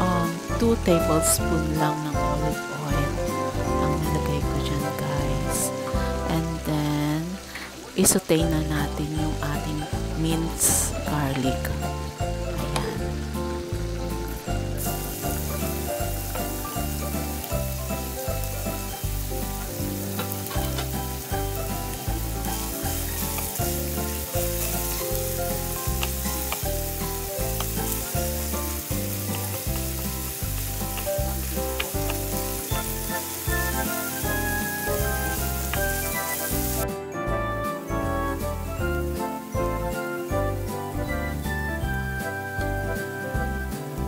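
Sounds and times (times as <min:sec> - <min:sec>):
garlic sizzling in oil: 0:00.0 - 0:37.0, 0:37.8 - 0:44.0
background music with low beat: 0:09.3 - 0:44.0.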